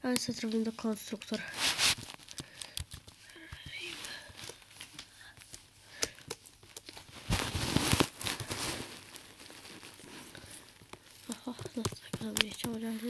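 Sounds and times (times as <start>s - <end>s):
keyboard keys clicking: 11.3s - 13.0s.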